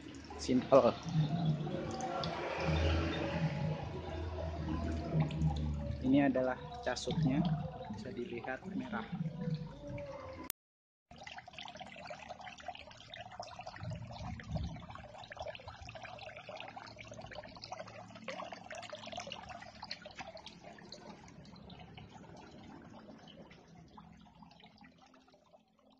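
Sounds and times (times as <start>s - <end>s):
steady low hum: 0.0s - 10.0s
water trickling and splashing: 0.0s - 10.5s, 11.1s - 25.9s.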